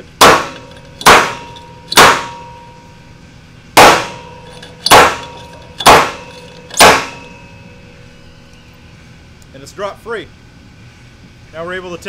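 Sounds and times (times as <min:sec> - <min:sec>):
metal shaft clanging on hard surface: 0:00.5 - 0:02.9, 0:04.1 - 0:08.7.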